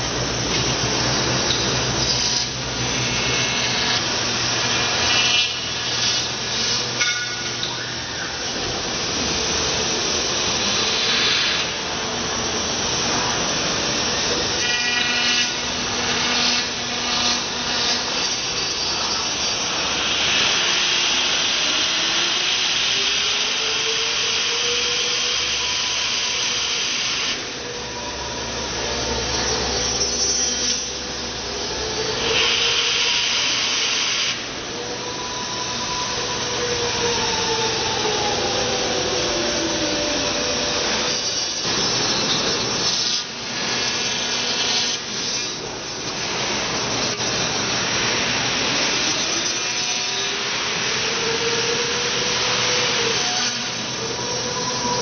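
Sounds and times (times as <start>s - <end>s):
cnc router cutting foam: 0.0s - 55.0s
rising tone: 34.4s - 42.2s.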